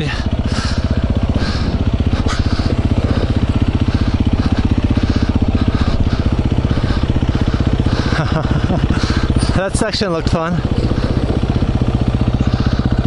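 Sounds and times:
dirt bike engine chugging: 0.0s - 13.0s.

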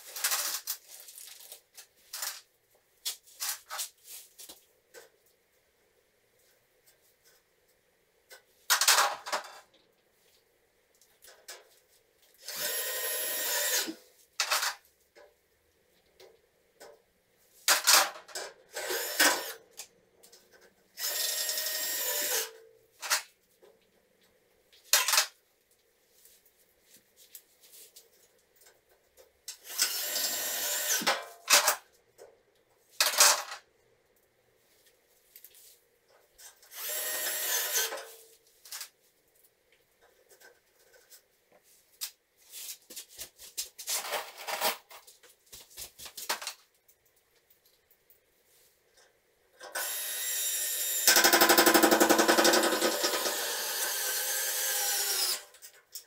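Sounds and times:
power drill driving screws: 12.4s - 14.0s, 18.8s - 19.6s, 21.0s - 22.5s, 29.6s - 31.1s, 36.7s - 38.0s, 49.8s - 55.5s.

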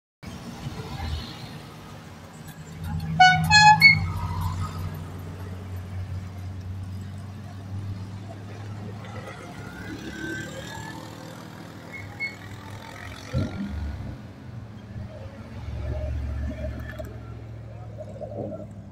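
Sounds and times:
car engines driving slowly past: 0.2s - 18.9s
car horn beeps: 3.1s - 4.2s.

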